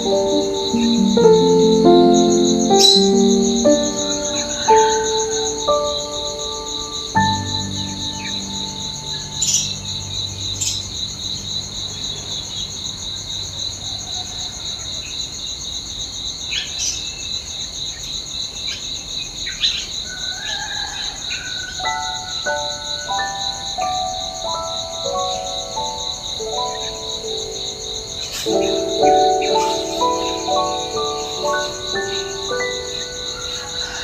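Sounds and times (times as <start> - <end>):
melodic background music: 0.0 - 10.8, 22.1 - 34.0
insects chirring: 0.0 - 34.0.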